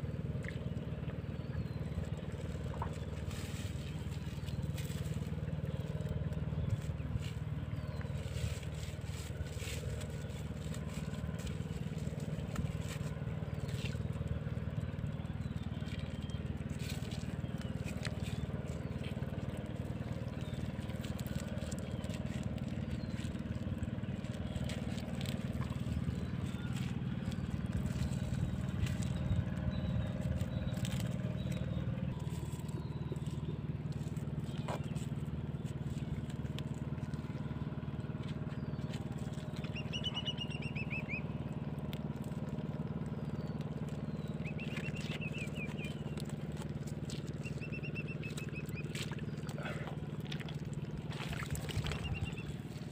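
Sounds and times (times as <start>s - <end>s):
engine droning: 0.0s - 52.9s
bird chirps: 38.5s - 41.5s, 43.0s - 50.0s, 51.6s - 52.9s.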